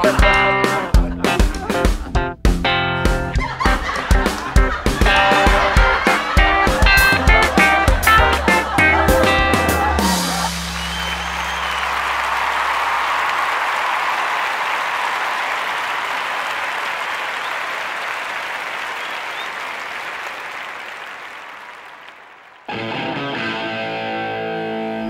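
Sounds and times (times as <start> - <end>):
audience applauding: 3.4 - 23.4.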